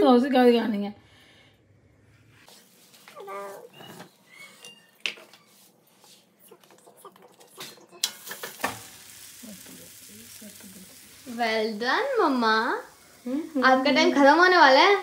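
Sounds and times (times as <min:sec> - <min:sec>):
taps and scrapes on griddle: 0:08.0 - 0:08.9
flatbread sizzling on hot griddle: 0:08.0 - 0:15.0.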